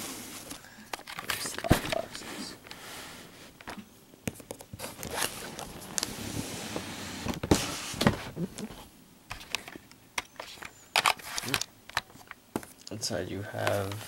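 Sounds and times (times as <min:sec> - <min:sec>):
cardboard scraping and rubbing: 0:04.8 - 0:08.8.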